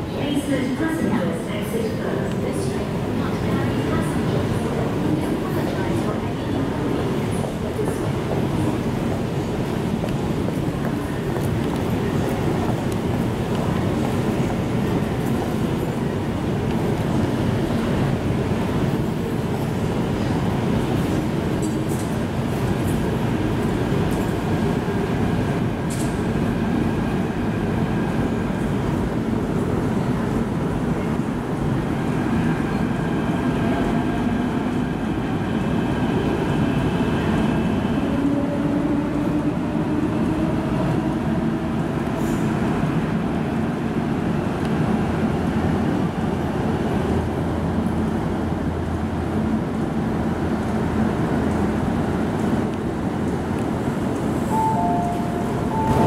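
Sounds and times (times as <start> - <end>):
low gliding tone: 54.6 - 56.0.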